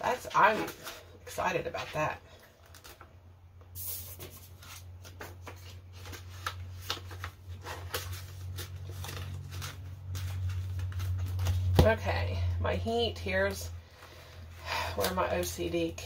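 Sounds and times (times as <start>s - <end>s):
steady low hum: 3.2s - 16.0s
banknotes and plastic rustling: 3.8s - 11.9s.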